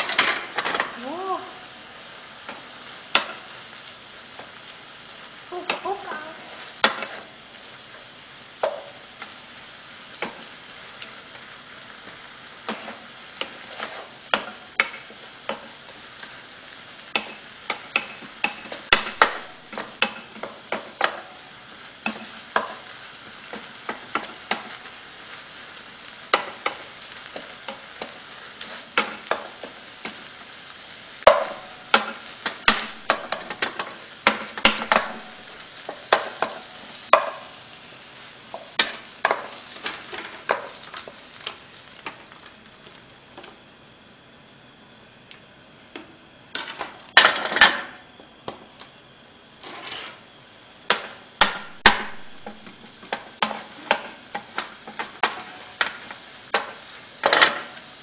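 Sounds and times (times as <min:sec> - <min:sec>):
fried rice sizzling in a pan: 0:00.0 - 0:58.0
spatula scraping and knocking pan: 0:05.6 - 0:07.4, 0:08.6 - 0:09.3, 0:10.1 - 0:16.0, 0:17.0 - 0:21.4, 0:22.0 - 0:25.4, 0:26.2 - 0:30.4, 0:31.2 - 0:37.6, 0:38.5 - 0:42.3, 0:49.6 - 0:57.9.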